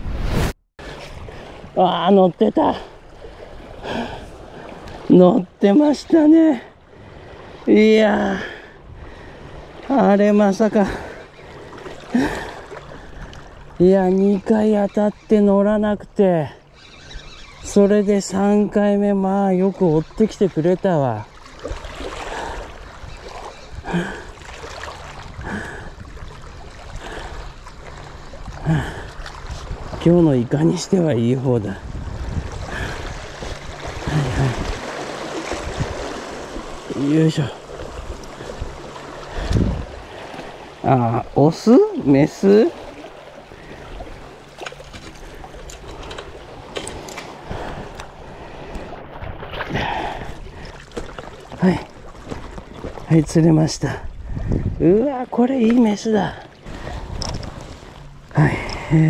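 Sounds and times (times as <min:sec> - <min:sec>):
sea water lapping on rocks: 0:19.6 - 0:31.2, 0:31.9 - 0:58.8
wind on microphone: 0:28.2 - 0:30.7, 0:31.5 - 0:36.8, 0:37.8 - 0:40.4, 0:53.8 - 0:55.0.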